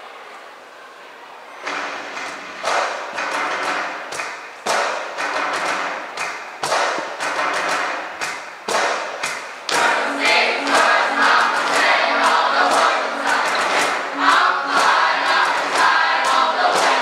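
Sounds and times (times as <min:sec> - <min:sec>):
cajon beat: 0:01.7 - 0:17.0
choir singing: 0:09.7 - 0:17.0.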